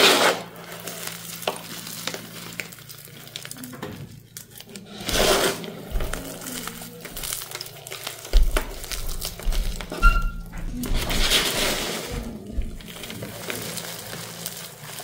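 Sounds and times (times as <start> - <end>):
hands crushing crumbly chunks: 0.1 - 15.0
dull thumps: 8.3 - 13.3.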